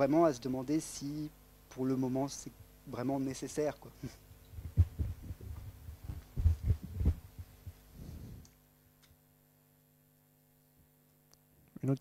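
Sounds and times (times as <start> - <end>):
sound system hum: 0.0 - 11.4
microphone handling thumps: 4.0 - 8.5.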